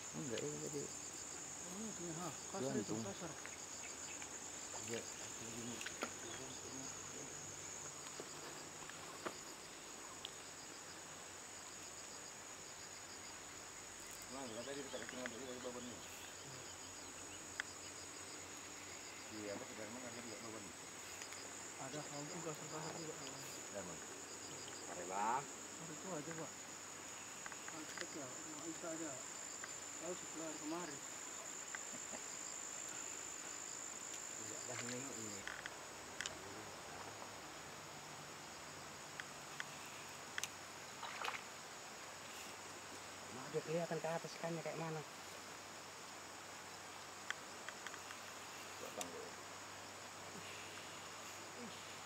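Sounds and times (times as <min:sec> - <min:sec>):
insects droning: 0:00.0 - 0:52.0
faint ticks: 0:10.1 - 0:10.5, 0:34.0 - 0:36.4, 0:39.1 - 0:41.4, 0:47.2 - 0:49.2.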